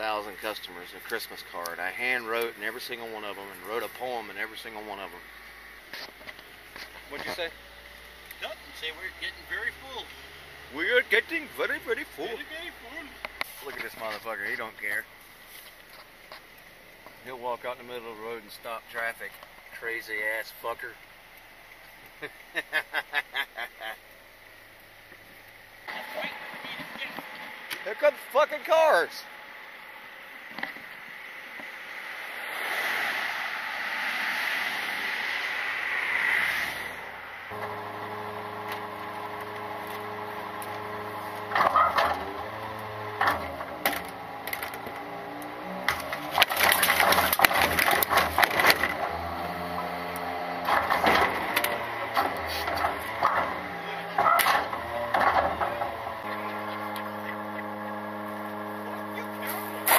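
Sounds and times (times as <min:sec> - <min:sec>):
garbage truck engine: 0:00.0 - 0:18.1, 0:36.8 - 0:59.9
tyres hissing on asphalt: 0:00.0 - 0:59.9
hydraulic cart lifter: 0:37.5 - 0:59.9.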